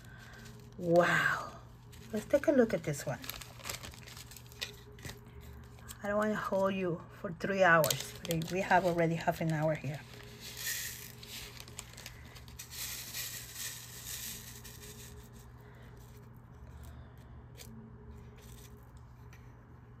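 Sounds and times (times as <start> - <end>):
plastic bags crinkling: 0.0 - 5.9, 7.7 - 15.6.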